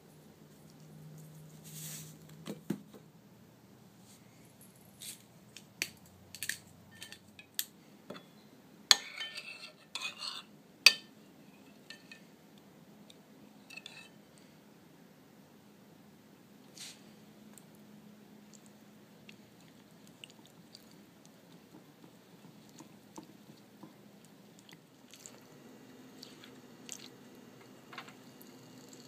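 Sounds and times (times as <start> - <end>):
metal spoon clinking in ceramic bowl: 6.9 - 12.2.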